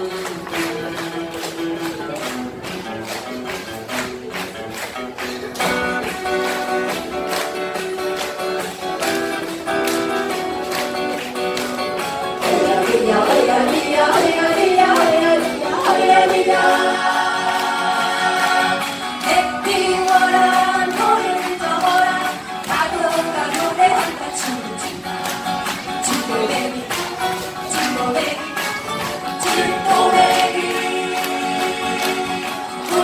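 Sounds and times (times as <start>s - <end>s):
acoustic guitars strumming chords: 0.0s - 33.0s
group of voices singing: 12.3s - 25.2s, 25.9s - 33.0s.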